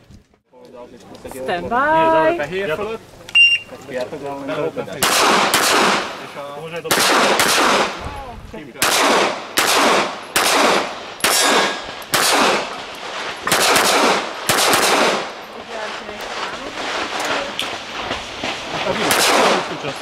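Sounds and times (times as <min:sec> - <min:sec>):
handgun shots with echo: 0:05.0 - 0:06.1, 0:06.9 - 0:08.0, 0:08.8 - 0:12.7, 0:13.5 - 0:15.3.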